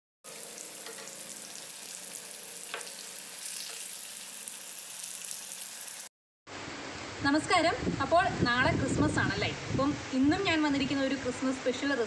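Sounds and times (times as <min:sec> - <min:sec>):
sausages sizzling in oil: 0:00.2 - 0:06.1
spoon stirring in pan: 0:00.3 - 0:04.2.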